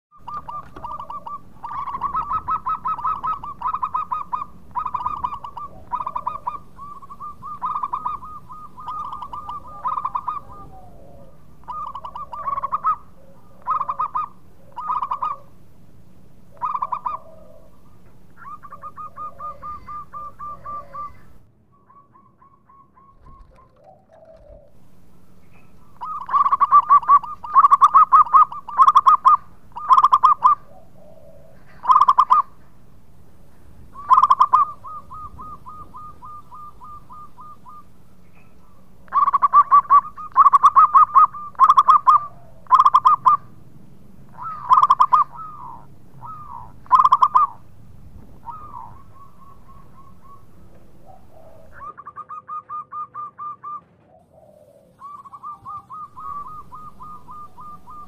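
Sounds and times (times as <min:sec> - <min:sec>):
dove cooing: 0:00.2 - 0:58.0.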